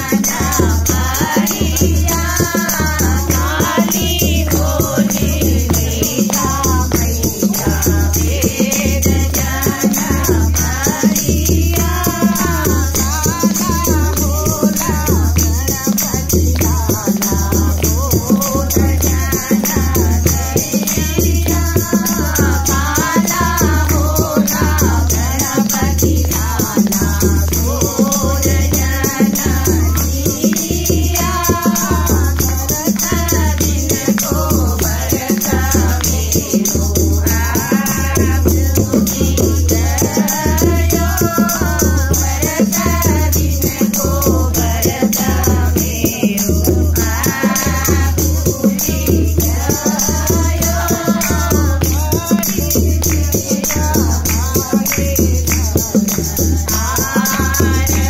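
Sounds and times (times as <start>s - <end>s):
barrel drum beat: 0.0s - 58.0s
women singing folk song: 0.0s - 58.0s
hand-clapping: 49.7s - 58.0s.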